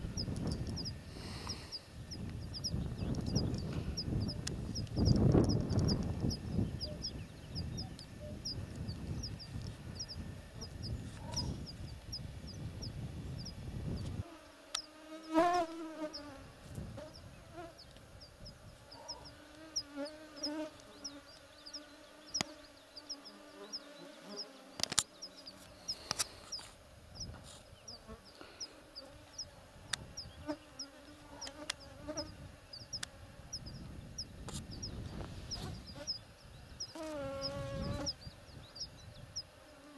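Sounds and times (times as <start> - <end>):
low wind rumble: 0.0 - 14.2, 32.3 - 39.4
insects buzzing: 0.0 - 39.9.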